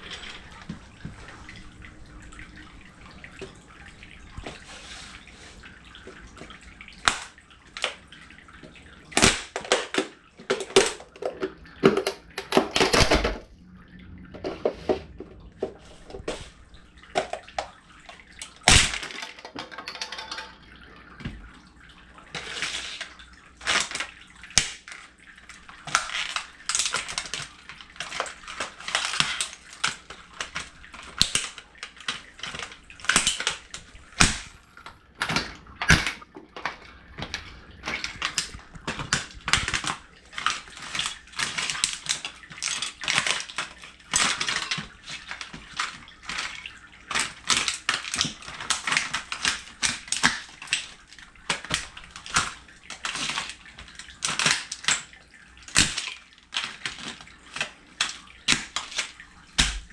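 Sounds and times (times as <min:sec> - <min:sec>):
plastic cracking and crunching: 0:06.0 - 0:08.0, 0:09.1 - 0:13.5, 0:17.1 - 0:20.6, 0:22.4 - 0:34.6, 0:35.2 - 0:59.9.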